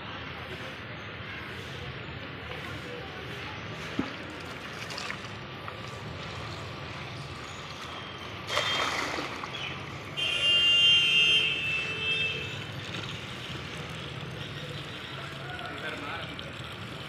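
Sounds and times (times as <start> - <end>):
hose water running into bucket: 3.7 - 10.2, 11.6 - 17.0.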